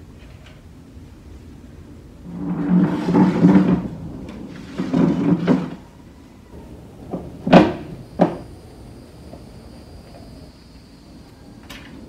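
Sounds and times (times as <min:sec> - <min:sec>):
wire hanger scraping: 0:02.3 - 0:05.8.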